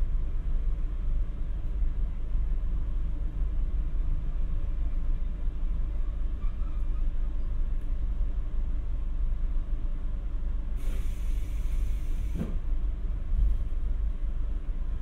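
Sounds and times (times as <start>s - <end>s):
train rumbling: 0.0s - 15.0s
air hiss: 10.8s - 12.6s.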